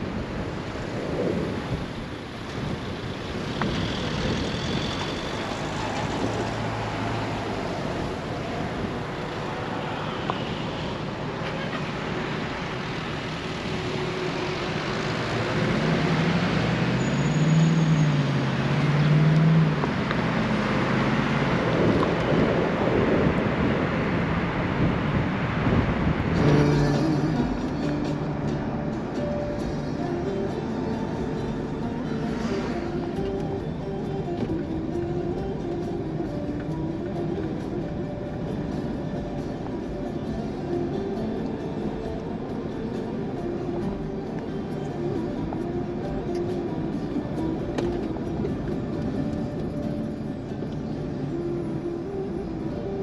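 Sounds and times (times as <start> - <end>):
wind and road noise: 0.0 - 53.0
vehicle engine revving: 13.6 - 23.3, 26.1 - 35.5.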